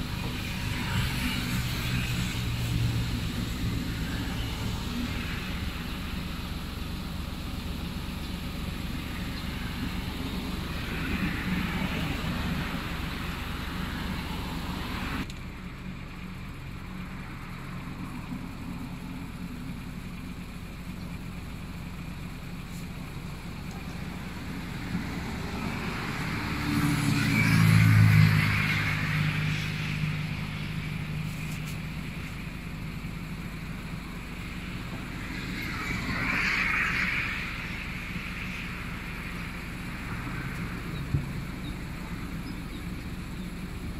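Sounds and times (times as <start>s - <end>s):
cars driving past: 0.0s - 43.9s
vehicle passing loudly: 23.6s - 43.0s.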